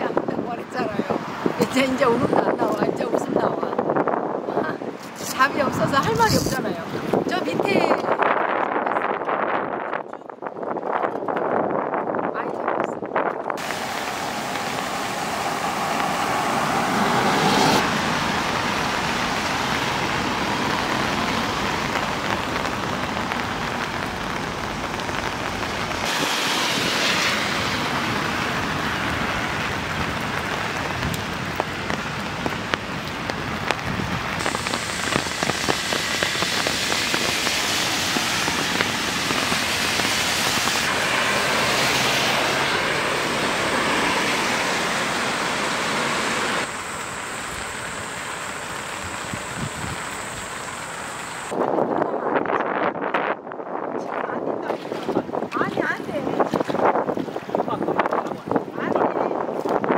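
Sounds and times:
steady rain falling: 13.6 - 51.6.

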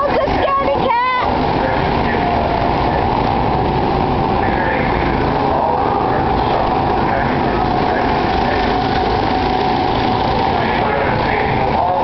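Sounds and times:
go-kart engines droning: 0.0 - 12.0.

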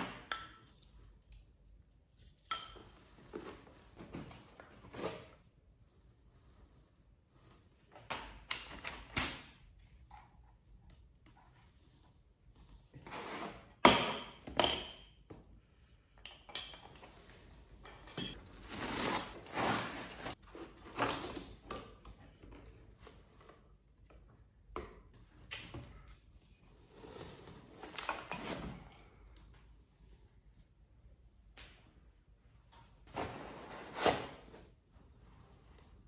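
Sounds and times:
rustling and scraping in box: 18.4 - 21.1.

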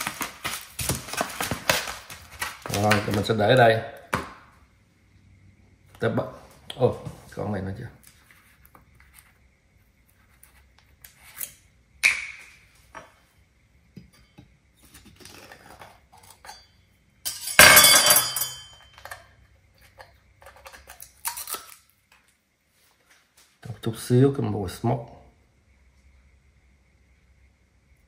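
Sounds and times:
dish clinking: 16.4 - 19.3.

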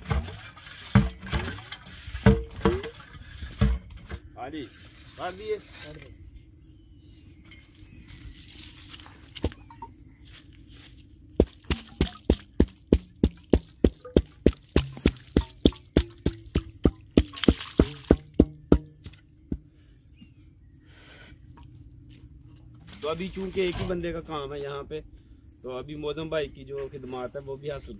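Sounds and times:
pipe working in muddy borehole: 0.0 - 6.1, 11.4 - 19.7.

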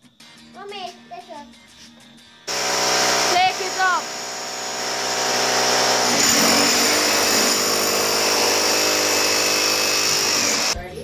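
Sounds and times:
demolition hammer chiseling concrete: 2.5 - 10.8.

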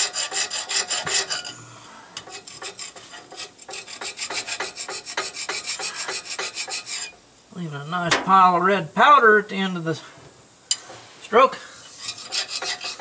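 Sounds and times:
hand file rasping on metal: 0.0 - 1.5, 2.2 - 7.1, 11.9 - 13.0.

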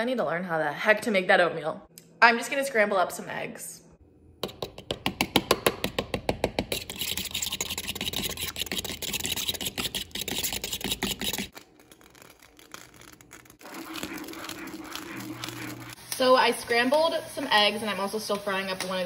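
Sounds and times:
fork beating eggs in bowl: 4.4 - 17.0.

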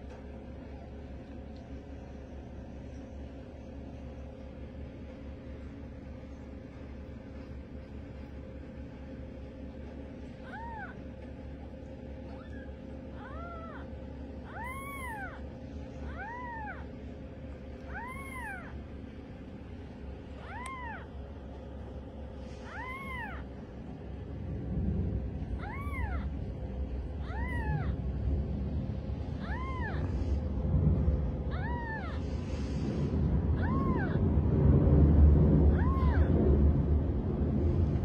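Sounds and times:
low rumbling noise: 0.0 - 38.0
kittens mewing: 9.9 - 34.6, 35.5 - 36.9.

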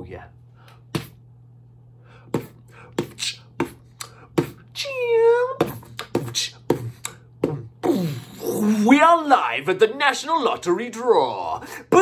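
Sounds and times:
man beatboxing: 0.9 - 1.2, 2.3 - 8.9.

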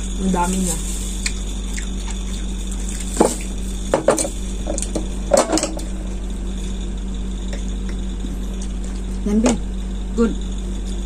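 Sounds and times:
low hum: 0.0 - 11.0
glass jar knocks and clinks: 4.0 - 5.9.

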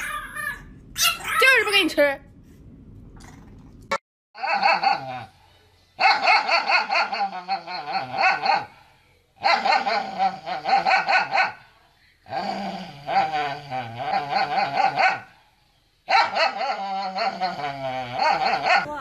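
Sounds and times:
dog yowling and barking: 0.0 - 1.6, 4.4 - 5.3, 6.0 - 8.7, 16.1 - 18.9.

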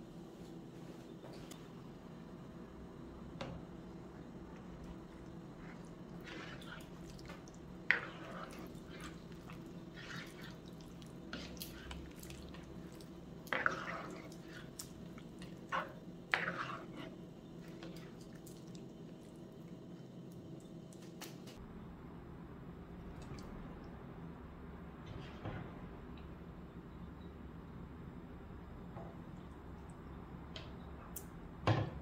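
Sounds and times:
ladle stirring stew in a pot: 3.5 - 18.8
broth sloshing and splashing: 4.8 - 17.0.

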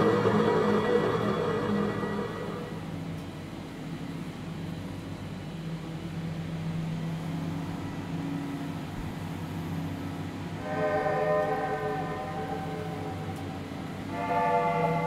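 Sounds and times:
dark ambient drone: 0.0 - 15.0.

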